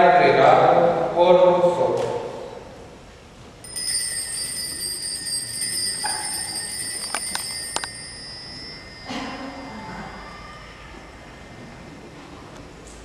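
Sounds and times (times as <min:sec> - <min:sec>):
altar bell ringing: 0:03.6 - 0:12.8.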